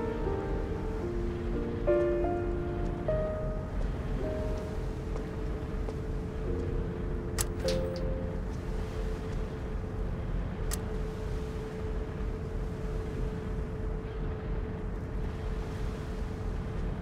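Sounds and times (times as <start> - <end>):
faint hum: 0.0 - 17.0
low background rumble: 0.0 - 17.0.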